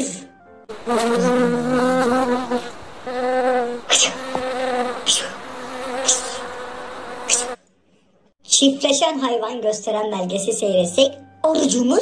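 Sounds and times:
bee buzzing: 0.7s - 7.6s
short hissing swishes: 3.9s - 4.2s, 5.0s - 5.4s, 6.0s - 6.5s, 7.2s - 7.6s.

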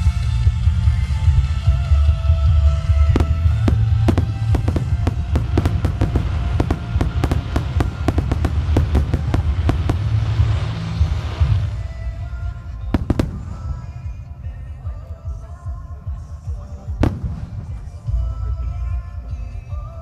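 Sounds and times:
music with heavy bass: 0.0s - 20.0s
fireworks bangs: 2.9s - 15.2s, 16.9s - 18.7s
hissing crackle of stars: 3.8s - 12.6s.

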